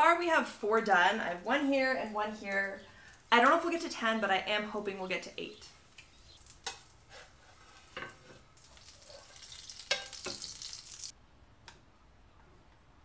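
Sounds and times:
crepe sizzling in a pan: 5.9 - 11.1.

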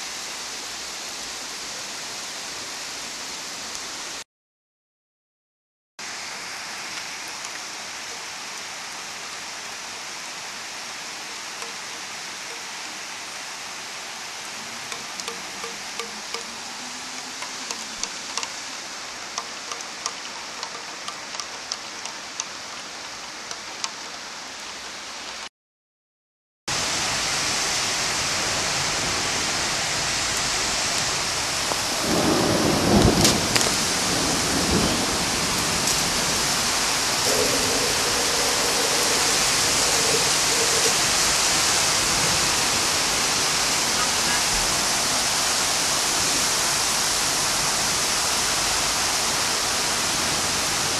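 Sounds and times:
heavy downpour: 0.0 - 4.2, 6.0 - 25.5, 26.7 - 50.9
steady rain falling: 0.0 - 4.2, 6.0 - 25.5, 26.7 - 50.9
raindrops ticking close by: 6.9 - 9.6, 11.1 - 13.2, 14.4 - 25.5, 30.2 - 46.4
thunder rumble: 28.4 - 43.5.

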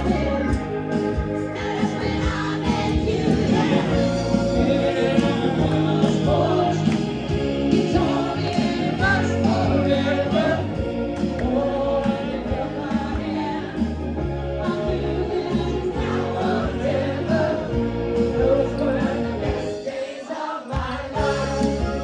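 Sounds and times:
live band playing: 0.0 - 19.9, 21.1 - 22.0
person singing: 3.2 - 10.7.

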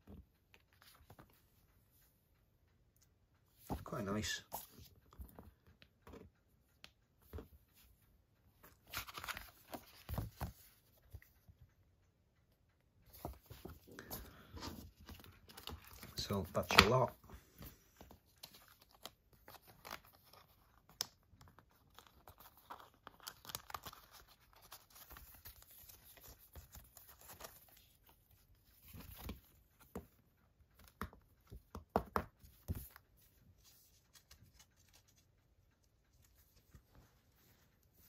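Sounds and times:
paper rustling and crinkling: 8.8 - 10.8, 17.6 - 28.0.

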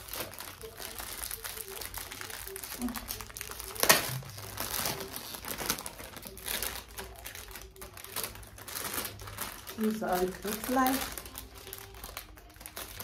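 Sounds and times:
plastic bag crinkling: 0.0 - 13.0.

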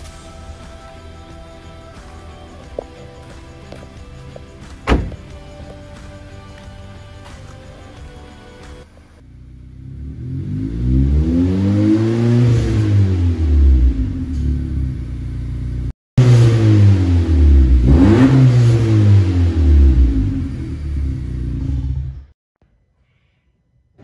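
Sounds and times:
car engine revving: 9.2 - 22.3.

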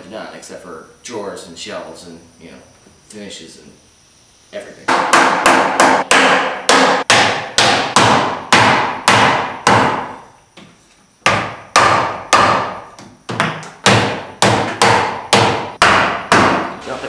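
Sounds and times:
hammer blows on wood: 4.9 - 10.3, 11.2 - 16.8.

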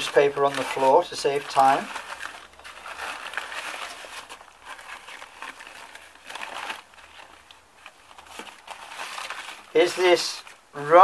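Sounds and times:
newspaper rustling and crumpling: 0.0 - 11.0.

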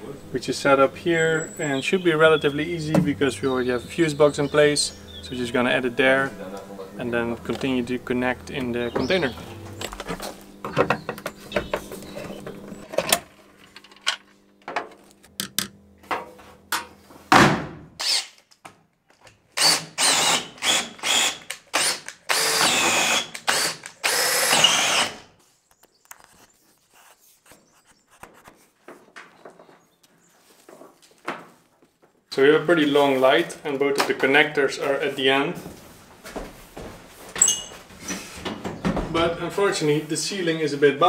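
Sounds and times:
tools clicking and knocking: 12.9 - 16.9
cordless drill whirring: 18.0 - 18.4, 19.6 - 25.3.

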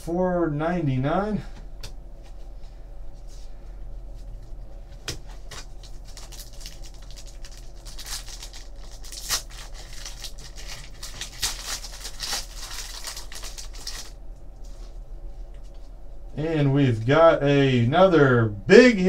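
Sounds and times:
foil pack crinkling: 5.2 - 14.2
foil tearing: 5.5 - 14.2.

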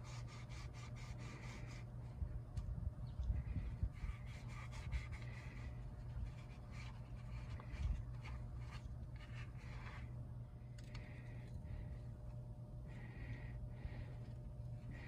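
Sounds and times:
steady low hum: 0.0 - 15.0
paper towel scrubbing: 4.0 - 10.1.

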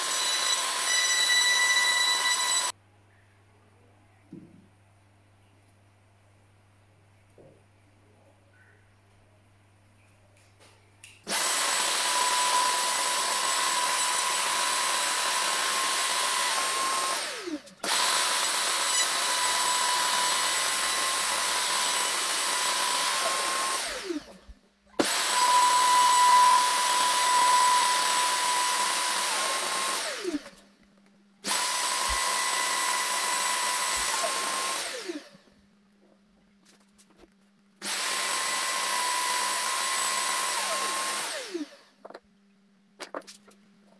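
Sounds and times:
router high whine: 0.0 - 2.7, 11.3 - 24.4, 25.0 - 30.5, 31.5 - 35.5, 37.8 - 41.9.

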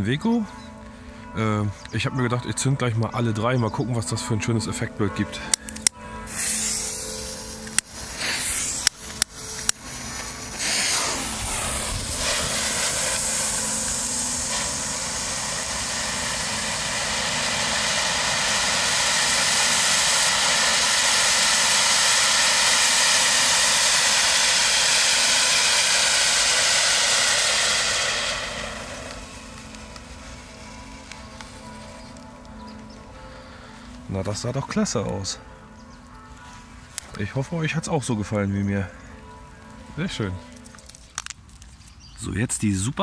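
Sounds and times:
fountain fireworks hissing sparks: 5.7 - 33.0, 39.9 - 42.0.

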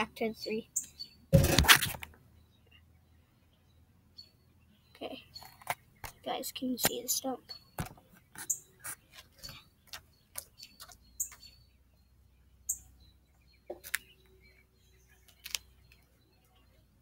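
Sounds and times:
high bird chirps: 0.3 - 1.3, 4.2 - 16.7
sharp taps and knocks: 7.8 - 8.5.

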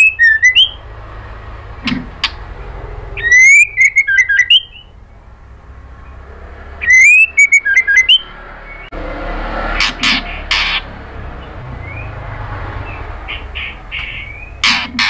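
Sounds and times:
bird singing whistled notes: 0.0 - 0.8, 3.2 - 5.0, 6.8 - 8.9, 11.8 - 12.2, 12.8 - 14.6.

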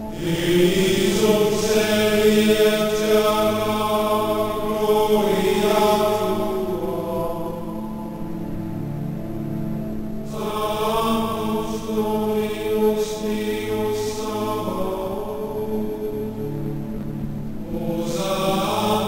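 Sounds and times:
bright upper voices: 0.0 - 8.8
slow choral chanting: 0.0 - 19.0.

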